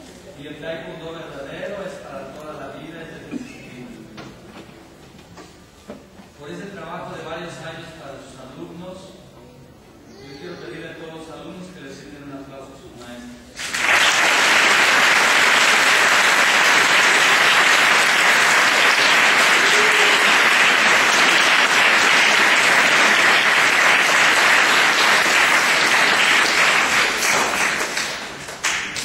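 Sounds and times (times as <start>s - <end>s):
audience applauding: 13.6s - 29.0s.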